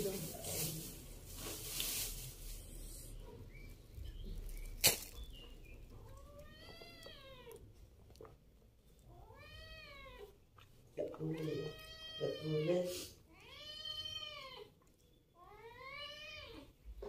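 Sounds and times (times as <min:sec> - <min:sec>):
cat meowing: 0:06.0 - 0:07.6, 0:11.4 - 0:14.8, 0:15.4 - 0:16.7.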